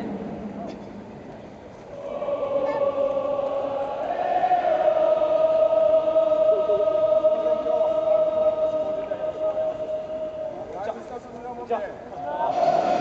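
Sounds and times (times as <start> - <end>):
football crowd chanting: 2.0 - 10.7, 12.3 - 13.0.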